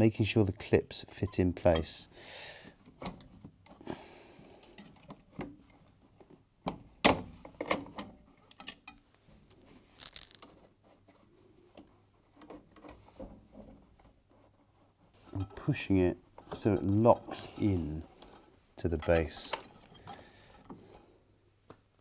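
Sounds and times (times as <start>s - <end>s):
scraping rustles: 9.4s - 11.1s.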